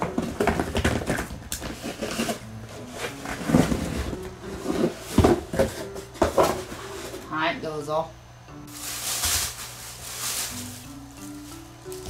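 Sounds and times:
oranges knocking and rolling on floor: 0.0 - 2.4, 3.3 - 6.8
cardboard scraping: 0.0 - 7.3, 8.7 - 12.0.

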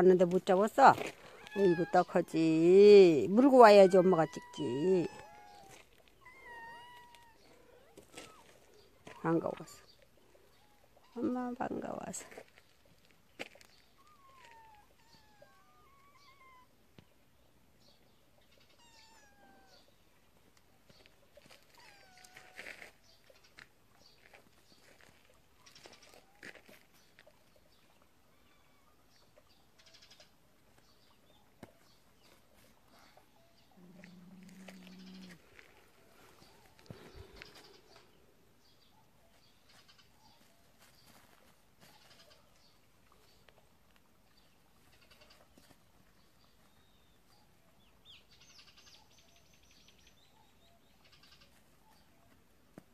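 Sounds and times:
faint animal calls: 1.0 - 11.5, 13.6 - 17.1, 18.4 - 20.0, 21.4 - 23.7, 25.0 - 30.4, 31.4 - 40.9, 41.8 - 43.4, 44.8 - 45.8, 46.7 - 52.4
kittens mewing: 3.3 - 8.5, 18.6 - 19.9.

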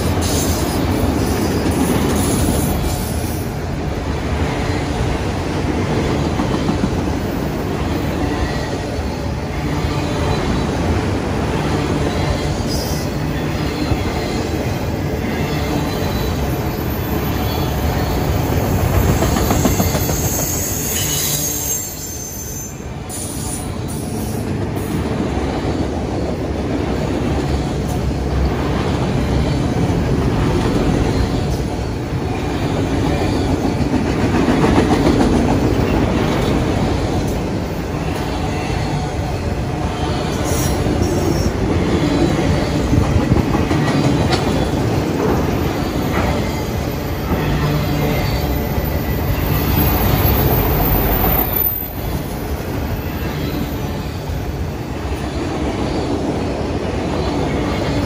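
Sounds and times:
train wheels rumbling on rails: 0.0 - 58.0
wheel squeals: 15.6 - 23.6.

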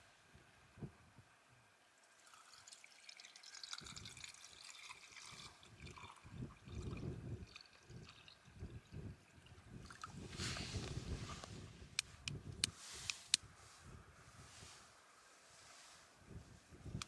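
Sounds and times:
water trickling into a pot: 2.0 - 10.3.

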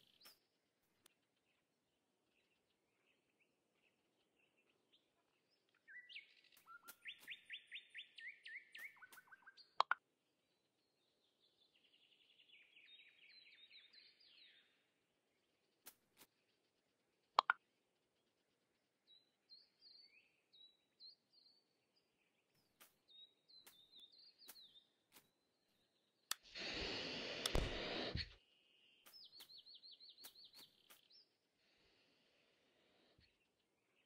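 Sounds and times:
bird chirping: 1.4 - 15.8, 16.4 - 26.4, 27.5 - 34.0
bird trill: 5.8 - 9.8.

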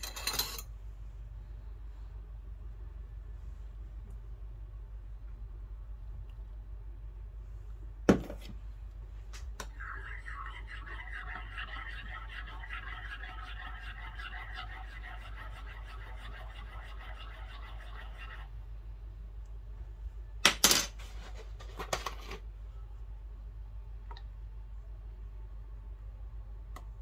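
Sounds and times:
metal clinking on ceramic: 0.0 - 0.6
teaspoon stirring in ceramic cup: 9.8 - 18.5.

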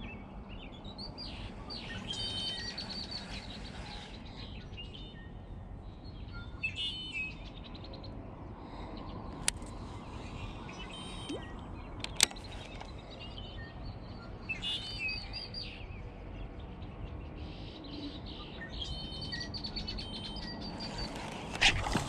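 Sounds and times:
songbirds chirping and singing: 0.0 - 22.0
sharp click: 12.0 - 12.9.

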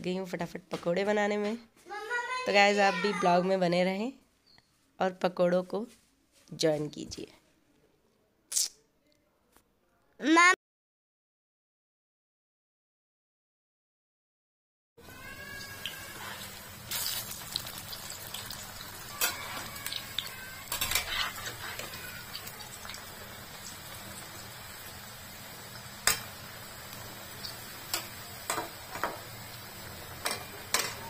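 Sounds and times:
food sizzling in hot oil: 15.0 - 31.0.

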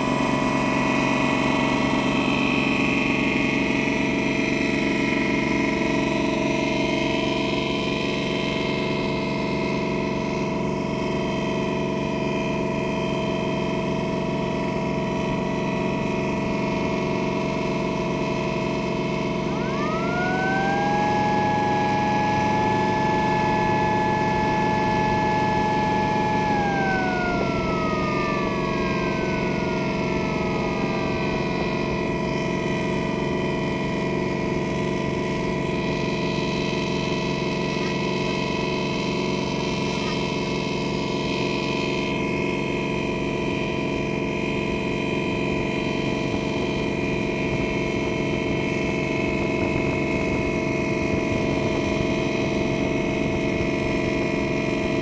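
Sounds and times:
boat engine droning: 17.4 - 38.2
siren wailing: 19.3 - 33.2.

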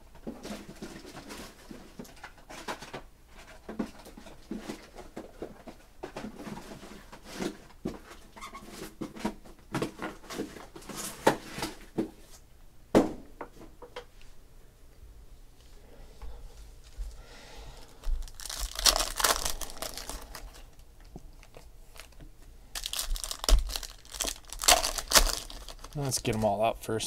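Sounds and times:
card packs rustling and crinkling: 0.2 - 12.4, 17.8 - 27.0.

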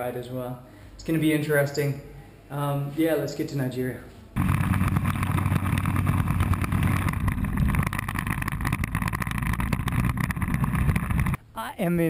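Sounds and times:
motorbike engine drone: 4.4 - 11.4
wind rushing over microphone: 4.4 - 11.4.

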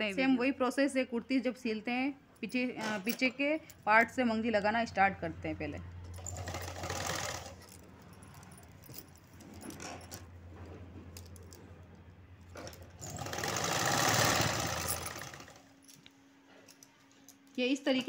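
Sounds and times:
sewing machine stitching: 6.2 - 7.7, 12.6 - 15.7
bangles clinking: 7.4 - 10.4, 14.6 - 16.1.

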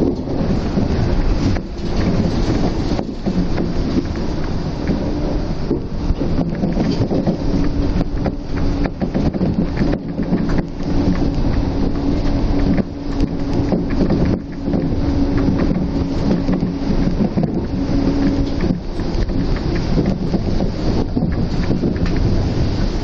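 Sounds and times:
monorail cabin rumble: 0.0 - 23.0
steady low hum: 0.0 - 23.0.

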